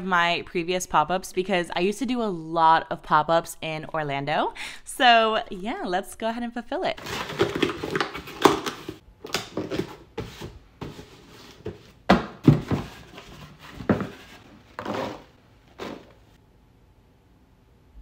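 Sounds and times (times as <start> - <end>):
cardboard being folded: 7.0 - 16.3.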